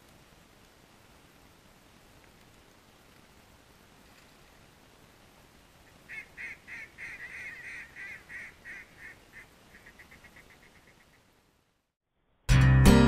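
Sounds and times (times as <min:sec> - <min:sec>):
duck quacking: 0:06.1 - 0:11.2.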